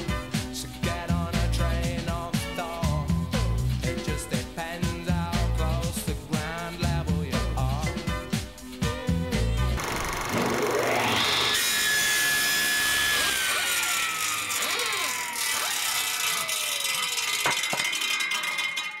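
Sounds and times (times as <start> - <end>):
rasping cutting noise: 9.8 - 18.2
circular saw whine: 9.8 - 18.9.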